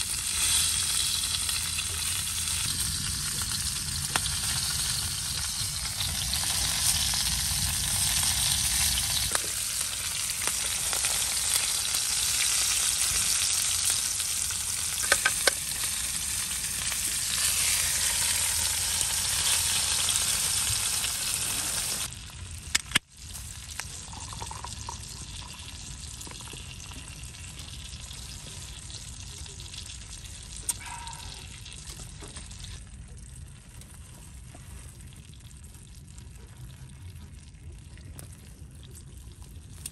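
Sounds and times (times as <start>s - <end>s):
meat sizzling in a pan: 0.0s - 22.3s.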